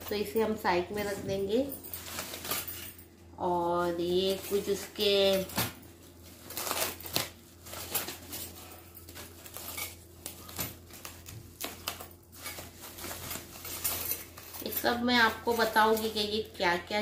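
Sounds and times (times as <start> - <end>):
paper crinkling and rustling: 4.2 - 16.2.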